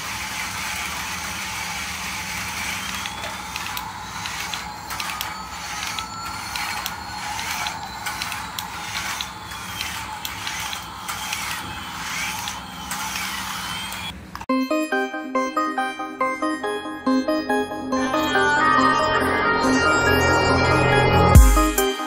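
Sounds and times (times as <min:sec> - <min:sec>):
toy gear drive whirring and clicking: 0:00.0 - 0:14.5
faint electronic tone: 0:02.5 - 0:11.4.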